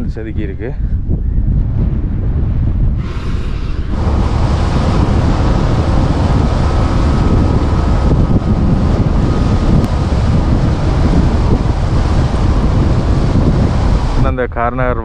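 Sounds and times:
wind buffeting microphone: 0:00.0 - 0:15.0
motorcycle road and engine noise: 0:02.8 - 0:14.4.

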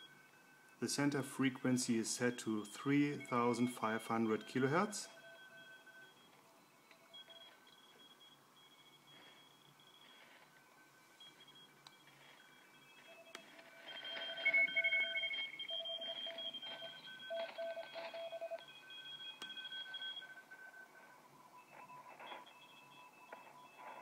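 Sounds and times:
faint radio band hiss: 0:00.0 - 0:24.0
morse code tones: 0:00.0 - 0:24.0.

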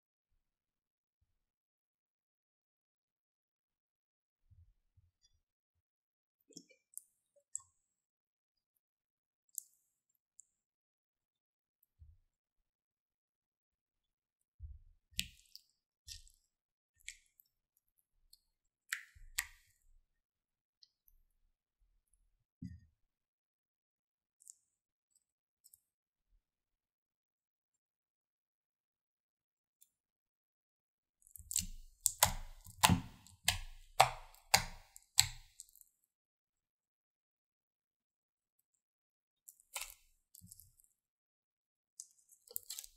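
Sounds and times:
slime squelching and clicking: 0:18.9 - 0:19.7, 0:31.2 - 0:35.8, 0:39.5 - 0:40.7, 0:42.0 - 0:42.9.

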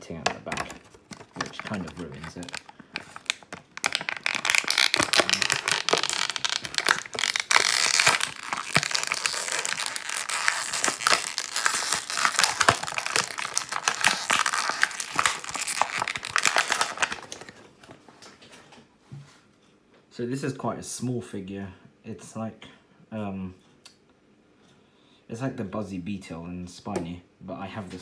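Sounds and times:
plastic packaging crinkling: 0:00.0 - 0:17.6.

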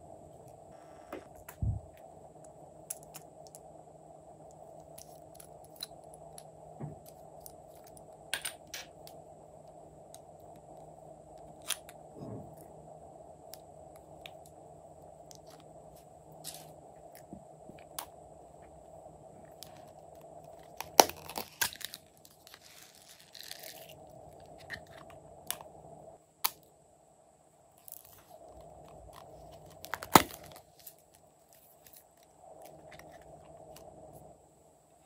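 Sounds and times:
crinkly rustle: 0:19.6 - 0:25.1.

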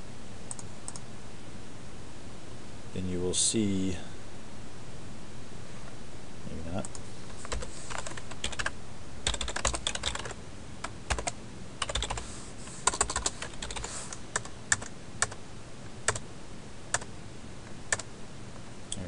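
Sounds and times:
keyboard typing: 0:06.8 - 0:15.4.

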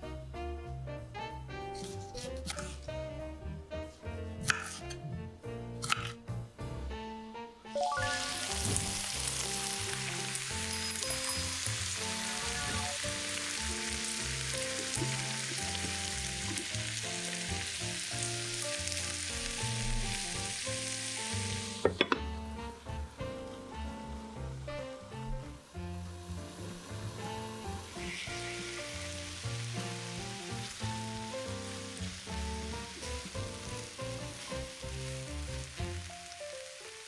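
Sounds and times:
vegetables sizzling in a frying pan: 0:07.8 - 0:37.0.

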